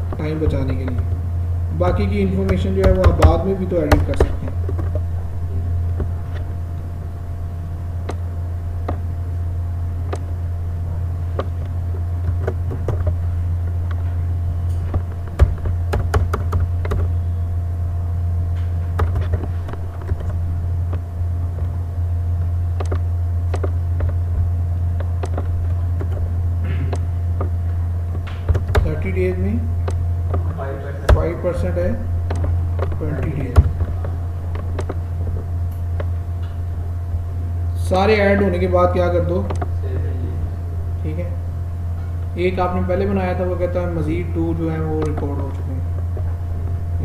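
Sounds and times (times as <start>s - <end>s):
steady low hum: 0.0s - 47.0s
computer keyboard and mouse clicks: 11.4s - 13.2s, 14.7s - 17.1s, 18.9s - 21.0s, 22.8s - 26.3s, 28.2s - 29.0s, 32.3s - 35.0s, 39.4s - 39.7s.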